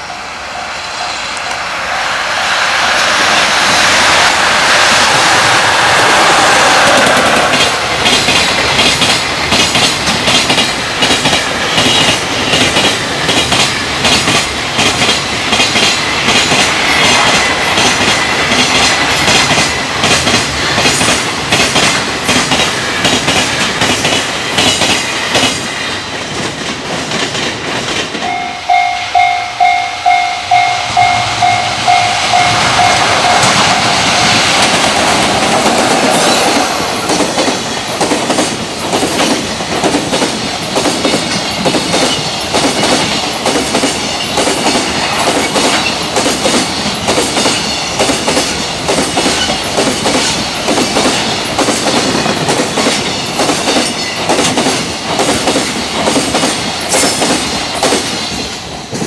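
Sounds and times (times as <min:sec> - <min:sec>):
freight train wheels clattering: 0:02.2 - 0:28.5, 0:31.2 - 0:59.0
level crossing warning bell: 0:28.2 - 0:34.4.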